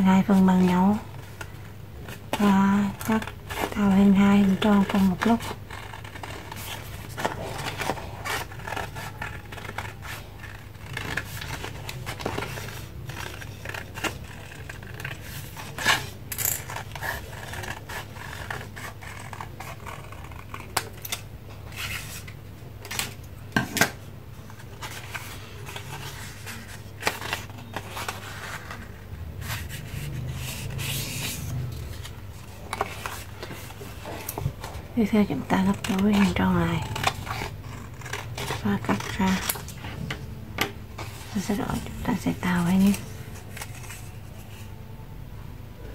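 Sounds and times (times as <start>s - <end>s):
steady low hum: 0.0s - 45.9s
paper rustling: 0.4s - 21.0s, 24.4s - 44.7s
scissors cutting paper: 2.4s - 21.2s, 35.1s - 40.2s.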